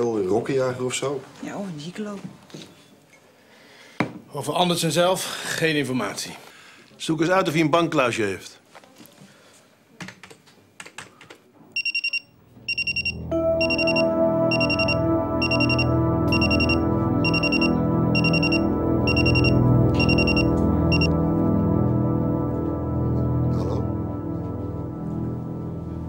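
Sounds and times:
mobile phone ringing: 11.8s - 21.2s
keyboard background music: 12.6s - 26.0s.

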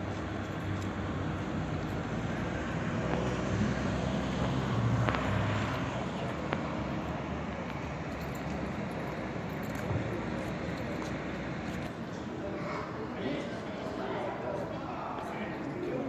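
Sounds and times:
road traffic noise: 0.0s - 16.0s
car engine passing: 1.0s - 8.0s.

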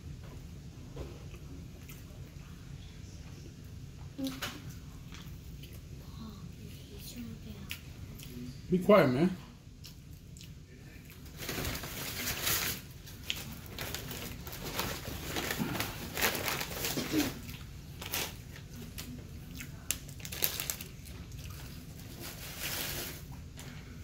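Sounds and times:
plastic bag rustling: 11.2s - 19.2s, 20.1s - 23.5s.

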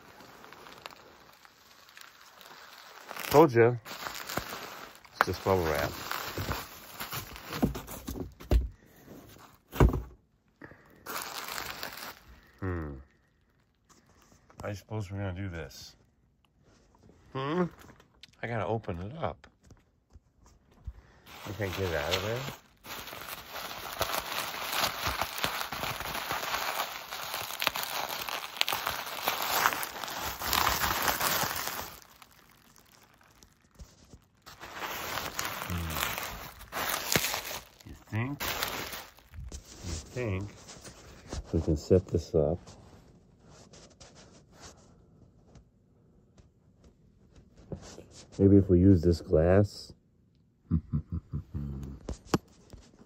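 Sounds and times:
bubble wrap crinkling: 0.0s - 10.0s, 10.6s - 14.5s, 20.6s - 42.4s.

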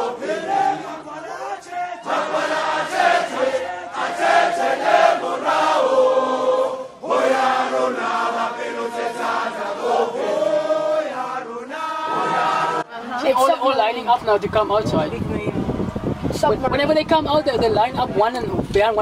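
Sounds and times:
choir chanting long notes: 0.0s - 13.0s.

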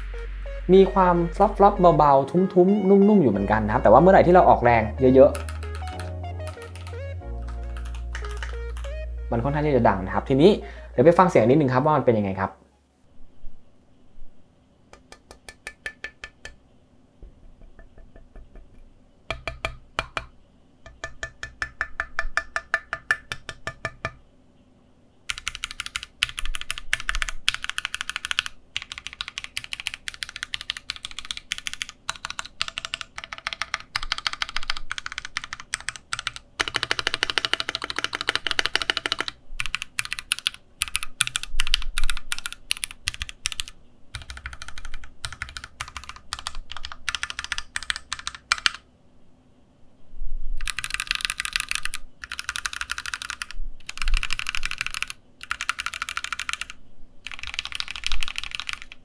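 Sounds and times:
mechanical keyboard typing: 5.0s - 9.0s, 25.3s - 48.8s, 50.6s - 59.0s.

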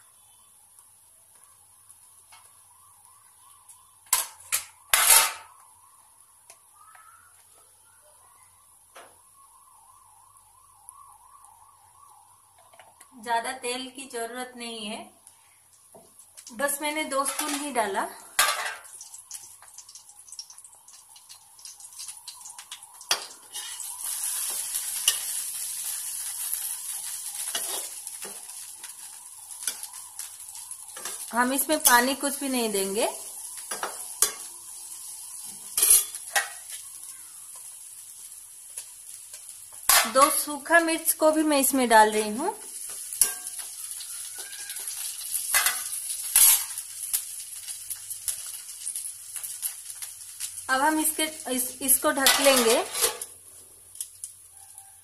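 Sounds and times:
eggplant sizzling in oil: 0.0s - 55.0s
metal spatula scraping: 4.1s - 5.5s, 23.1s - 25.4s, 35.5s - 36.7s, 42.9s - 46.8s, 52.2s - 53.4s
metal spoon stirring: 23.1s - 25.9s.

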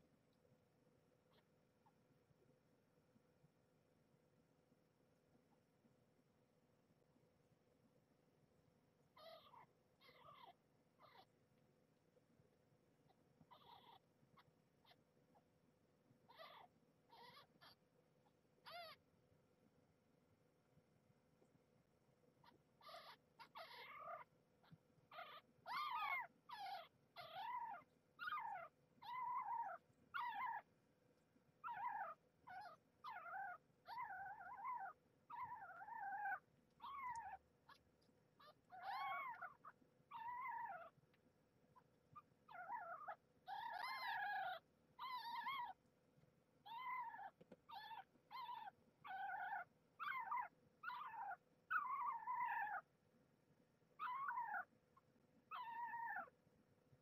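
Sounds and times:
kittens mewing: 22.4s - 24.2s.

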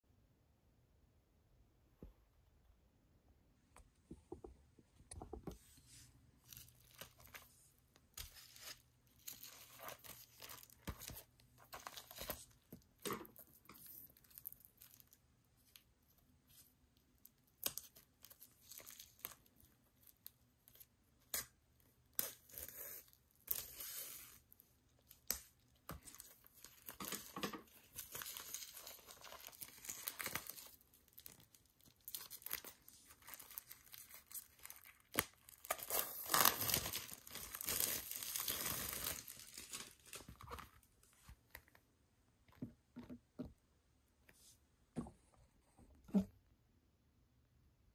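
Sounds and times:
plastic wrap crinkling and tearing: 6.4s - 15.8s, 17.2s - 21.5s, 22.1s - 41.1s.

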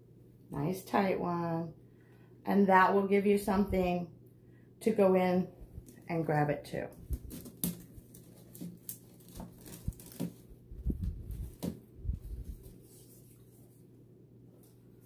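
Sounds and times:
flower stem and wire rustling: 7.0s - 13.8s.

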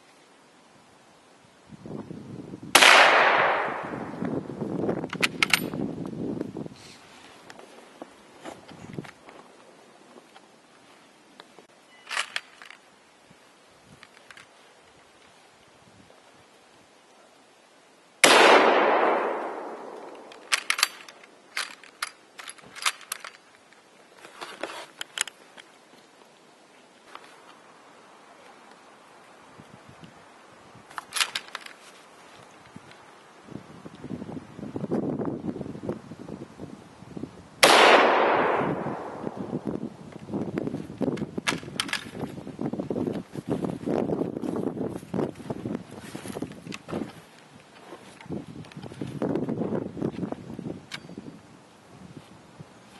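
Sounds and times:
rifle shot echoing: 2.7s - 4.2s, 18.2s - 20.6s, 37.6s - 39.6s.

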